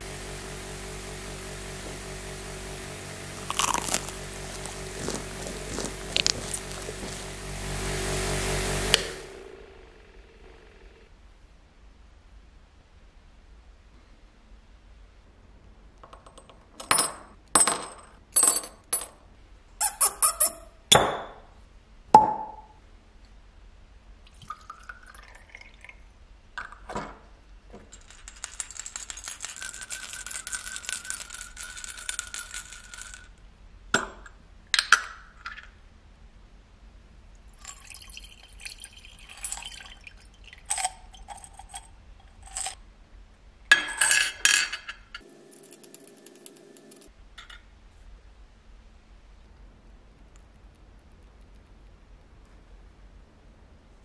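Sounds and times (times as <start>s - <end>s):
metal parts clinking on glass: 3.4s - 7.2s, 27.9s - 33.3s, 39.3s - 39.9s, 40.7s - 42.8s, 43.7s - 47.6s.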